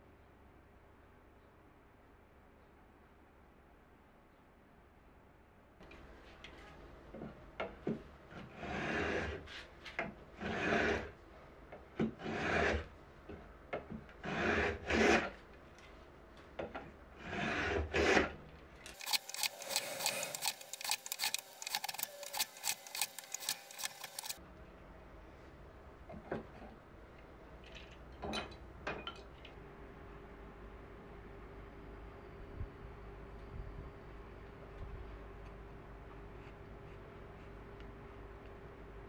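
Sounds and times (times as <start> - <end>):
hand plane cutting wood: 8.4 - 9.5, 10.4 - 11.1, 12.0 - 12.9, 14.2 - 15.4, 17.2 - 18.4, 19.0 - 24.4.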